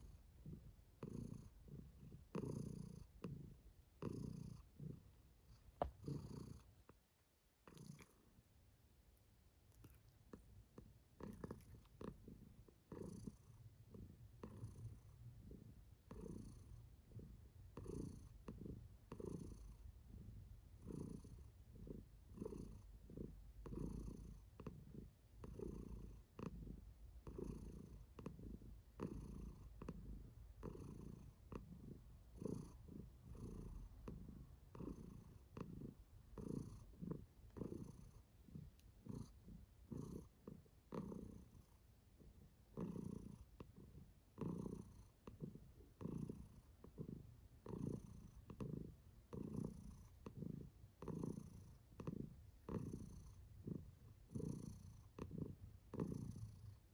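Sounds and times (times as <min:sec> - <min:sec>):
cat purring: 0:00.0 - 0:56.9.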